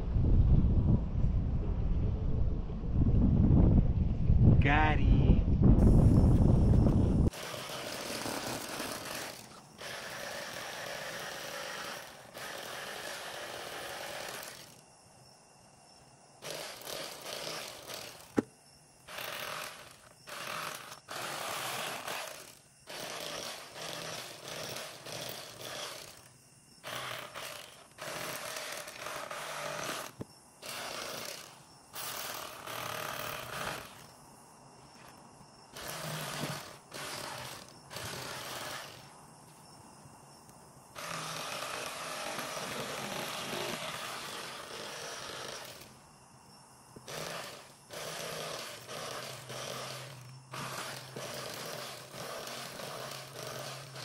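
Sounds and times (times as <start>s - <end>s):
electric knife buzzing: 6.9s - 14.8s, 16.4s - 34.1s, 35.7s - 39.1s, 40.9s - 46.0s, 47.0s - 54.0s.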